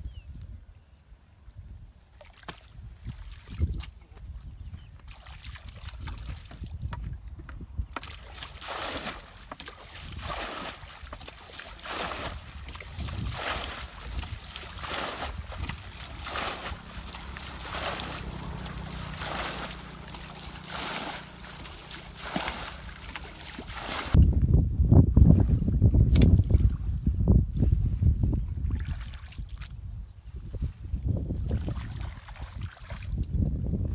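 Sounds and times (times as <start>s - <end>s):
wind rumble on microphone: 0.0s - 33.9s
bucket scooping water: 4.9s - 24.2s, 28.6s - 29.8s, 31.4s - 33.4s.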